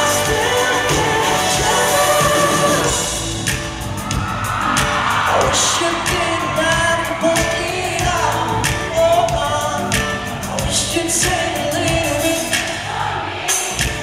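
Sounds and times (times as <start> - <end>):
man singing: 0.0 - 3.2, 5.3 - 12.9
band with drums: 0.0 - 12.9, 13.5 - 14.0.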